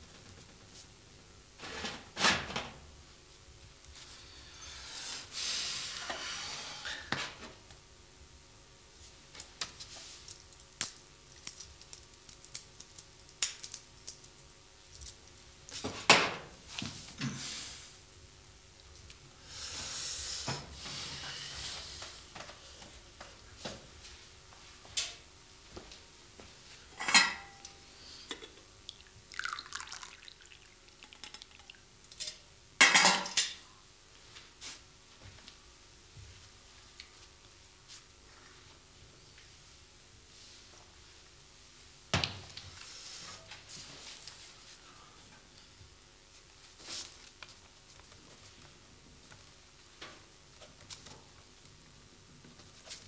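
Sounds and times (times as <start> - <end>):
tea pouring into a glass: 28.9 - 31.8.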